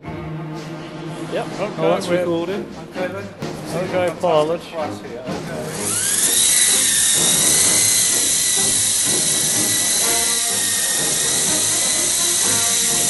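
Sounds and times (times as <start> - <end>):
rotor blades hissing: 5.6 - 13.0
toy helicopter motor whine: 5.6 - 13.0.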